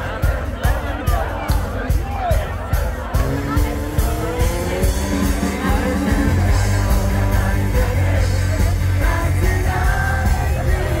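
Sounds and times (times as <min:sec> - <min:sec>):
live rock band playing: 0:00.0 - 0:11.0
person singing: 0:03.8 - 0:11.0.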